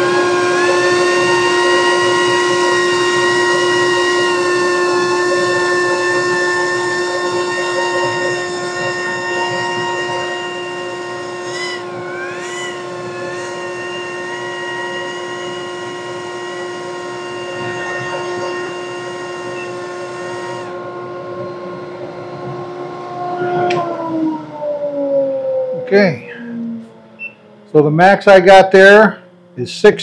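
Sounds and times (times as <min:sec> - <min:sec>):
dust collector whining: 0:00.0 - 0:30.0.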